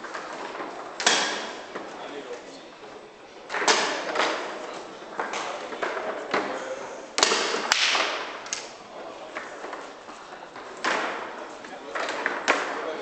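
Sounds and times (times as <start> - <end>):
foosball ball clacks: 3.5 - 6.6, 7.2 - 9.9, 10.5 - 13.0.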